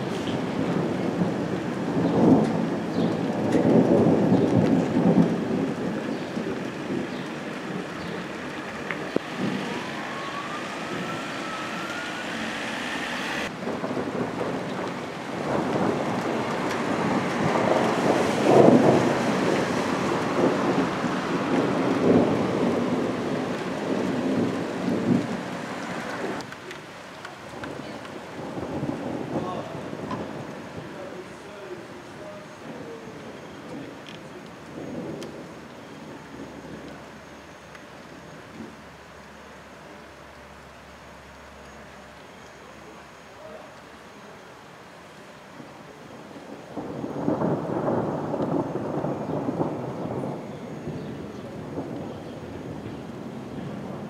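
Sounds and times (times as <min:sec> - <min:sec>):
thunder rumbling: 0:00.0 - 0:26.6, 0:27.4 - 0:37.6, 0:45.6 - 0:54.0
faint rising whine: 0:09.2 - 0:13.5.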